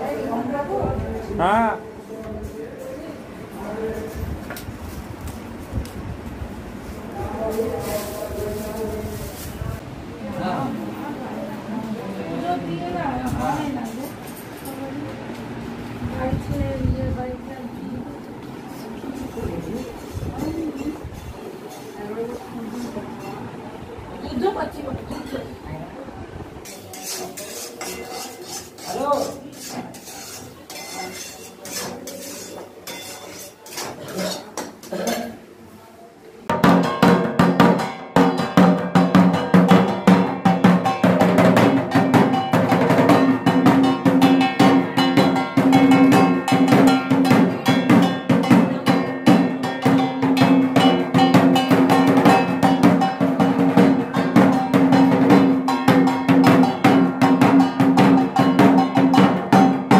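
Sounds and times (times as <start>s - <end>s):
quiet cooking sounds: 0.0s - 59.9s
utensils clinking: 13.5s - 14.9s, 26.6s - 35.4s
barrel drum beaten with stick: 36.5s - 59.9s.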